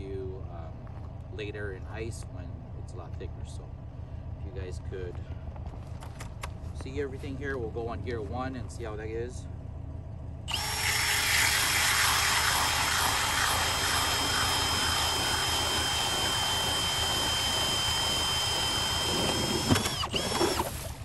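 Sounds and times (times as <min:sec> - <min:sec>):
auger grinding through ice: 0:10.5 - 0:21.0
drill motor and gear whine: 0:10.5 - 0:21.0.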